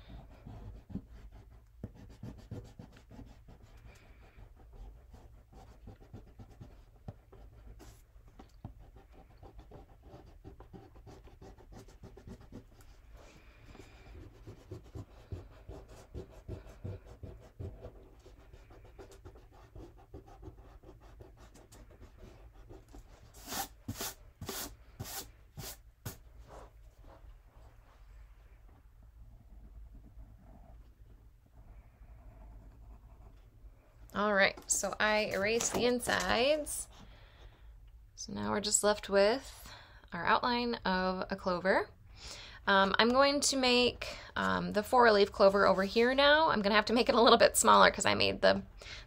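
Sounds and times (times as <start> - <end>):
eraser rubbing on paper: 9.0 - 26.7
hand brushing paper: 10.5 - 27.2.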